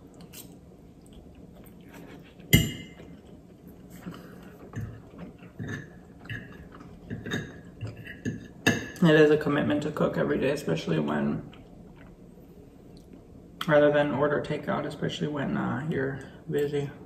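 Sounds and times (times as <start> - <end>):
person chewing with mouth clicks: 0.0 - 7.1.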